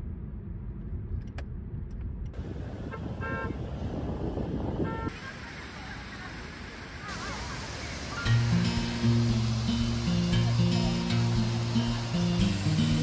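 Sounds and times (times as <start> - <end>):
car road noise rumble: 0.0 - 13.0
car horn toots: 2.8 - 3.6, 4.8 - 5.2.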